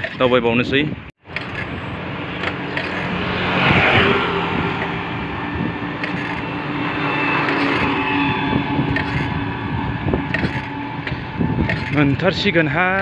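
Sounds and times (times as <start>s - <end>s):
wind noise on microphone: 0.0s - 13.0s.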